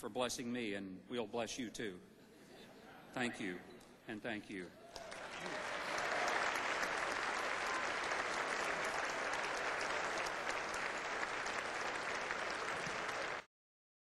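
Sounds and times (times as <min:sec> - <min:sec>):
audience applauding: 0:04.9 - 0:13.5.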